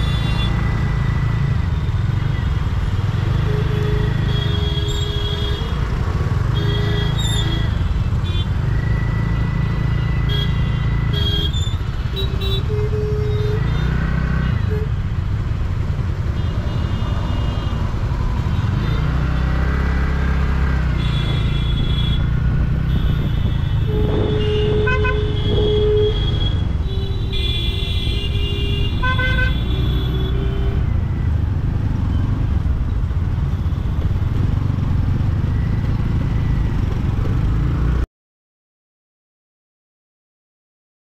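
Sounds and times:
traffic rumble: 0.0 - 38.1
vehicle horns honking: 3.2 - 8.7, 10.0 - 15.0, 20.9 - 31.0.

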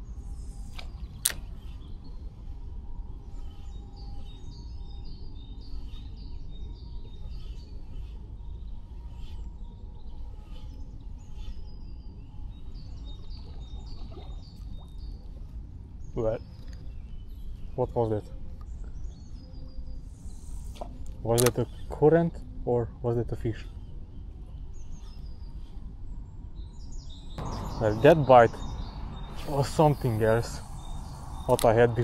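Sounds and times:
low rumble of wind: 0.0 - 32.0
small birds chirping: 0.0 - 32.0.

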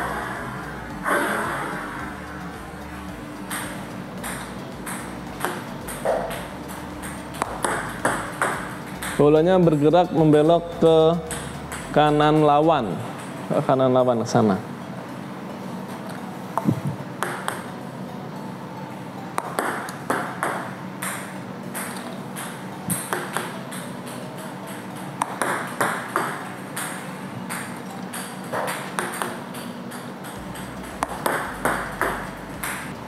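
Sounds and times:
bat striking table tennis ball: 3.4 - 10.5, 11.2 - 11.9, 16.6 - 17.7, 19.4 - 33.0
ball bouncing on table: 3.5 - 10.6, 11.2 - 12.3, 16.6 - 17.7, 19.4 - 33.0.

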